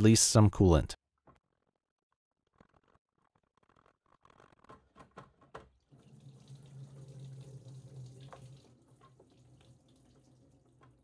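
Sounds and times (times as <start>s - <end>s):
liquid trickling into a pan: 5.9s - 11.0s.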